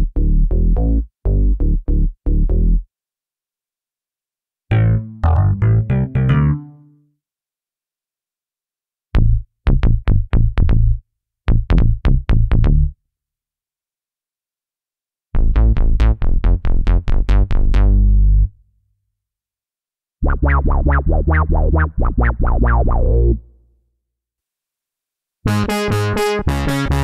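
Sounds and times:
synthesizer bass notes: 0:00.0 - 0:02.8, 0:04.7 - 0:06.8, 0:20.2 - 0:23.5.

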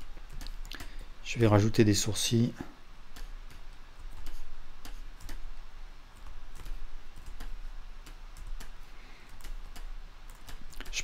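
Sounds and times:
faint low hum: 0:00.0 - 0:11.0
computer mouse clicks: 0:00.3 - 0:01.0, 0:03.1 - 0:05.5, 0:06.2 - 0:11.0.

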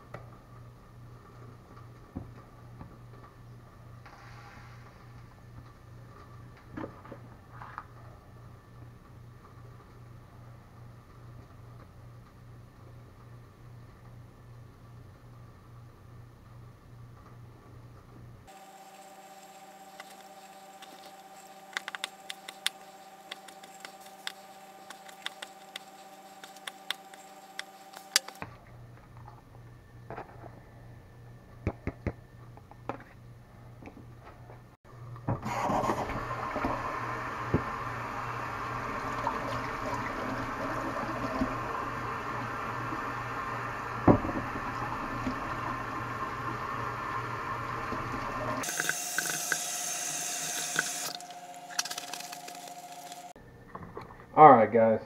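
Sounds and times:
steady hum: 0:18.3 - 0:33.8
faucet running: 0:36.3 - 0:53.3.

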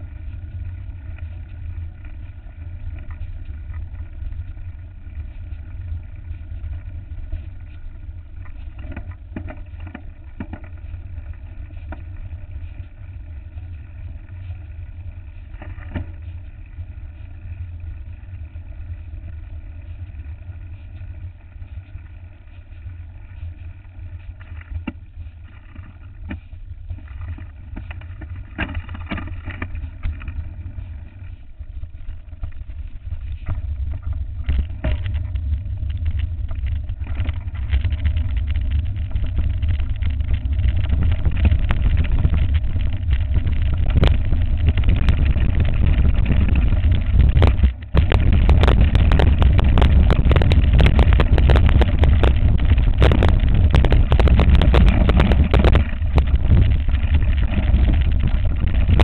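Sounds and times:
bike knocks and rattles: 0:08.5 - 0:12.9, 0:27.0 - 0:31.2
wind buffeting microphone: 0:25.5 - 0:59.0.

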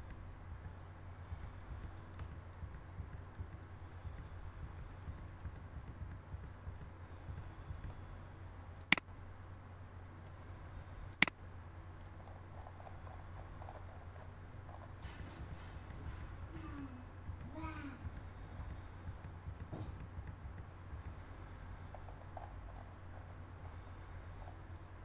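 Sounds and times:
computer mouse clicks: 0:00.0 - 0:08.2
faint low hum: 0:00.0 - 0:25.0.

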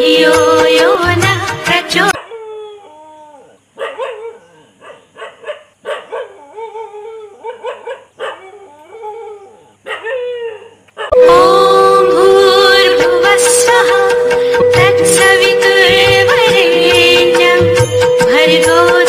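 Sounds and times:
loud music with held note: 0:00.0 - 0:02.2, 0:11.1 - 0:19.0
dog whining and yelping: 0:02.2 - 0:11.1.

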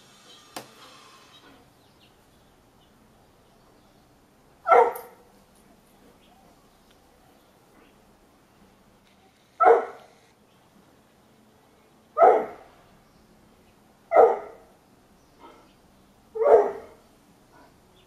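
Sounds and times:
terrier barking: 0:04.6 - 0:05.3, 0:09.6 - 0:10.1, 0:12.2 - 0:12.7, 0:14.1 - 0:14.8, 0:16.3 - 0:17.8.

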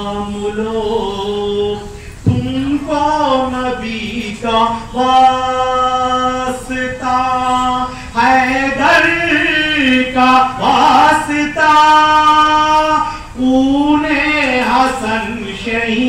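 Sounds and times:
person singing devotional song: 0:00.0 - 0:16.0.

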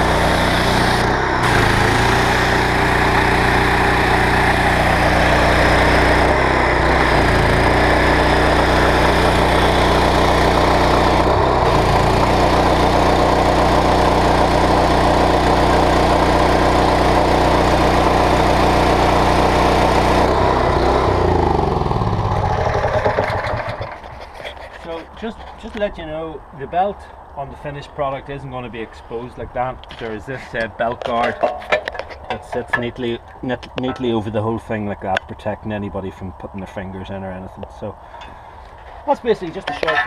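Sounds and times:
engine winding down: 0:00.0 - 0:24.2
petrol engine running: 0:00.0 - 0:24.3.

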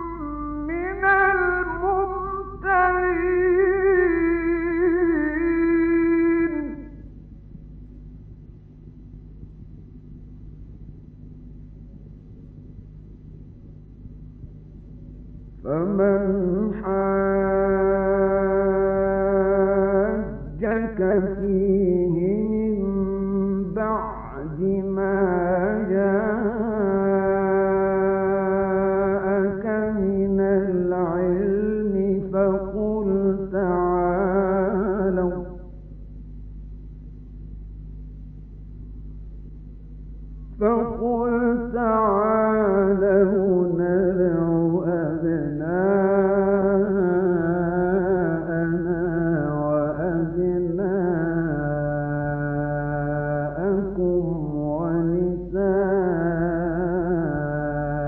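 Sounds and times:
man chanting melismatically: 0:00.0 - 0:07.0, 0:15.6 - 0:35.8, 0:40.6 - 0:58.0
low hum: 0:00.0 - 0:58.0.

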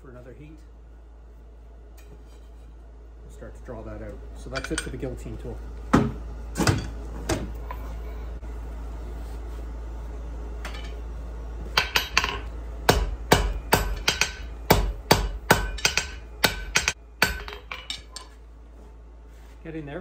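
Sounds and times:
hammer striking steel on anvil: 0:11.7 - 0:18.4.

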